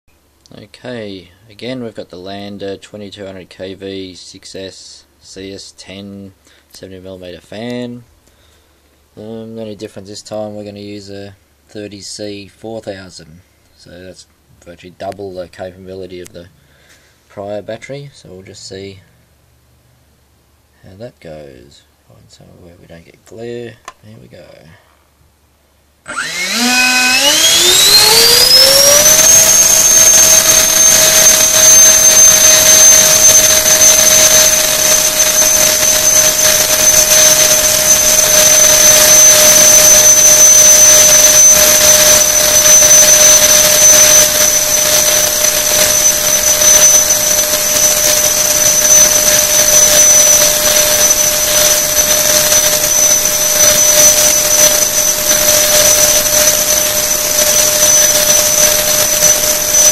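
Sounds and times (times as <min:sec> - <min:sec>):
electric ducted fan whining: 0:26.0 - 0:59.9.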